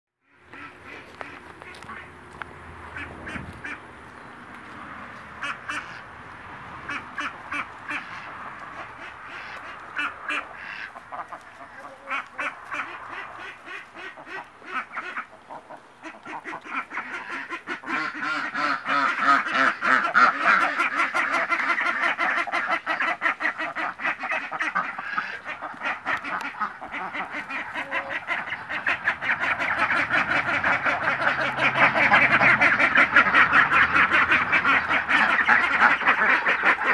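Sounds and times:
ducks quacking: 0.2s - 36.9s.

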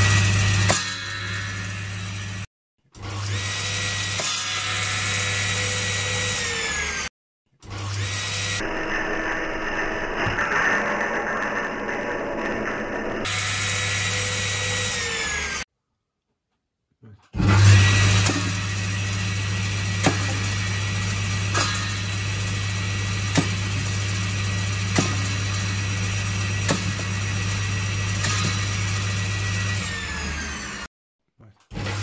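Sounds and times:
circular saw running: 0.0s - 15.7s, 17.4s - 30.9s
sharp knocks on saw blade: 20.0s - 20.4s, 23.3s - 23.6s, 24.9s - 25.4s, 26.7s - 27.1s.

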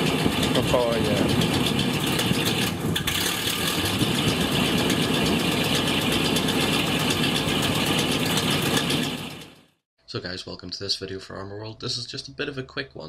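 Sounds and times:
engine idling: 0.0s - 9.8s.

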